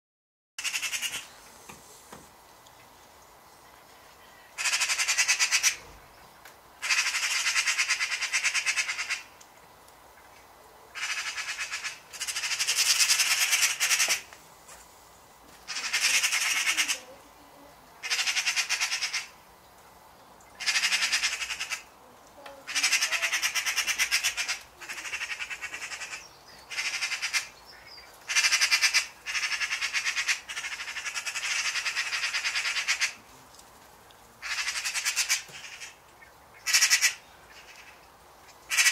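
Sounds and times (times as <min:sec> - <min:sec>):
magpies rattling chatter: 0:00.6 - 0:01.3, 0:04.6 - 0:05.8, 0:06.8 - 0:09.3, 0:11.0 - 0:14.3, 0:15.7 - 0:17.2, 0:18.0 - 0:19.3, 0:20.6 - 0:21.9, 0:22.6 - 0:33.2, 0:34.4 - 0:38.0, 0:38.7 - 0:38.9.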